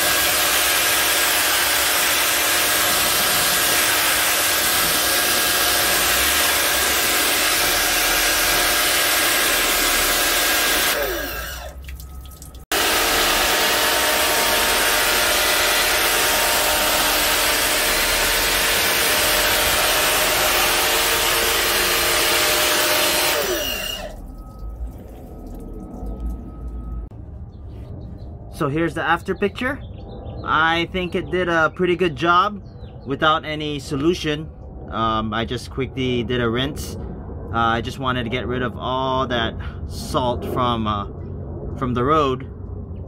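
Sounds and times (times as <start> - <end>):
motor winding down: 0.0 - 11.9, 12.7 - 27.1
pressure washer spraying: 0.0 - 11.9, 12.7 - 24.2.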